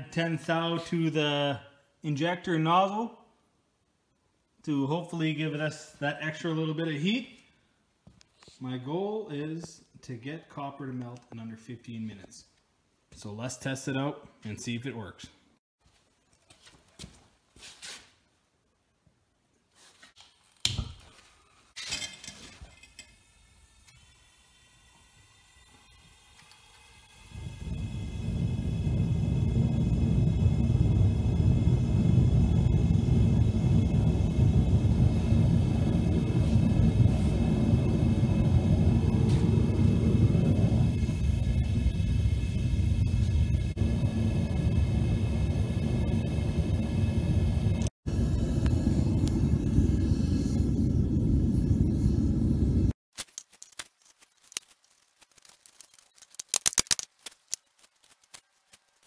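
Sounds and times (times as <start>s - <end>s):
propane burner flame rumbling: 25.4s - 53.0s.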